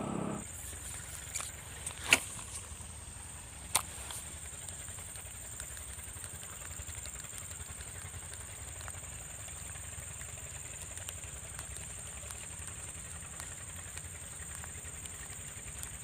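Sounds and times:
high-pitched whine: 0.0 - 0.4
pump engine droning: 0.0 - 16.0.

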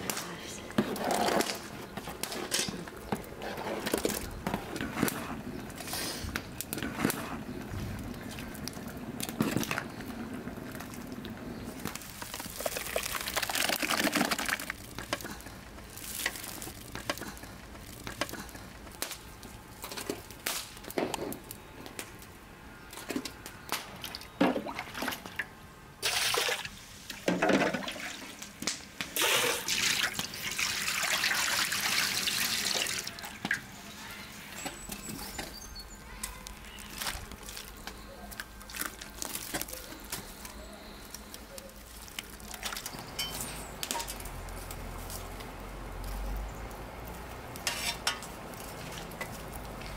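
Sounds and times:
juice pouring into metal basins: 2.9 - 19.0, 24.0 - 34.6, 36.8 - 44.6.

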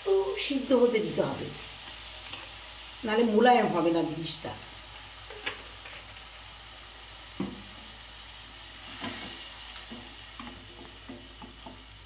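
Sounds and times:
faint sizzle from pan: 0.0 - 12.0
spatula scraping a pan: 8.8 - 11.2.

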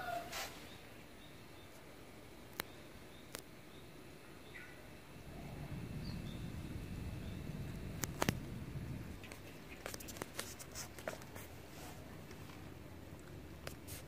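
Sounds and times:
cats lapping water: 5.3 - 13.9.

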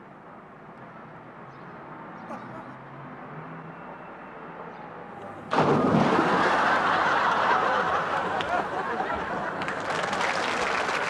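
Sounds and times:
loud water splash: 5.5 - 7.3
audience applause: 5.5 - 11.0
studio audience laughter: 6.0 - 10.1.

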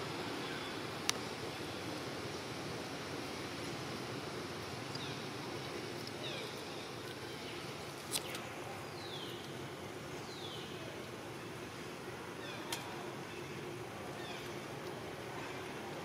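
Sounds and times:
outdoor background hiss: 0.0 - 16.0.

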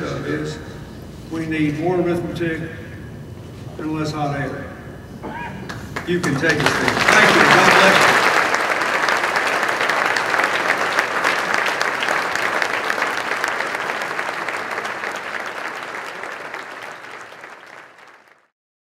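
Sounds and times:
audience applauding: 5.7 - 18.5.

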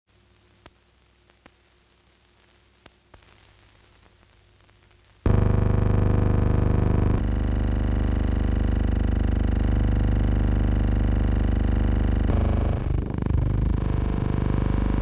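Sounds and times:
engine drone: 5.3 - 15.0.

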